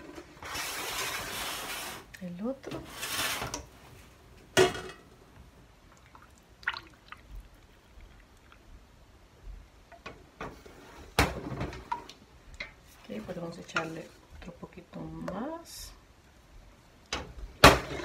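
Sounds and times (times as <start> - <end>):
thick batter pouring and dripping: 5.8 - 9.0.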